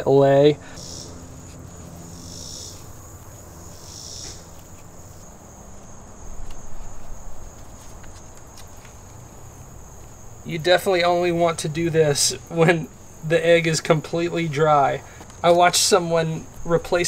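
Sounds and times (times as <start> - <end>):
insects trilling: 0.0 - 17.0.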